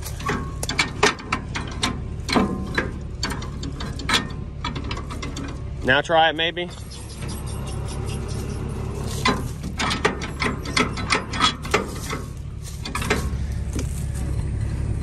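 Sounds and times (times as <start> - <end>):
low engine hum: 0.0 - 15.0
rusty lever clicking and clanking: 0.1 - 5.6, 9.2 - 13.4.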